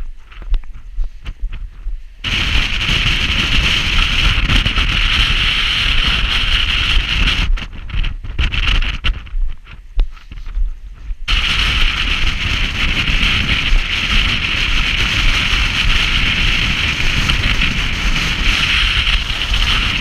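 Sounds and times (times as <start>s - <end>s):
footsteps scuffing on stony trail: 0.0s - 2.2s, 8.0s - 11.3s
wind blowing on microphone: 0.0s - 20.0s.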